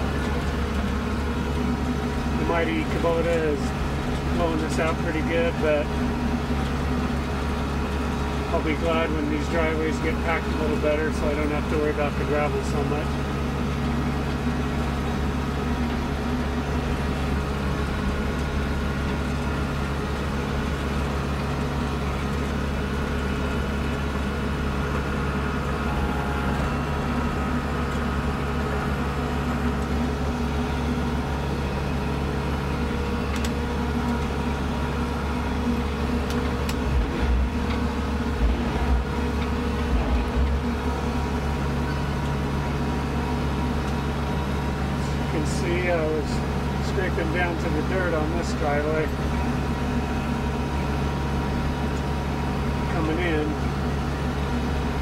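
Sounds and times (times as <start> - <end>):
tractor diesel engine under load: 0.0 - 55.0
low thumps: 36.8 - 40.9.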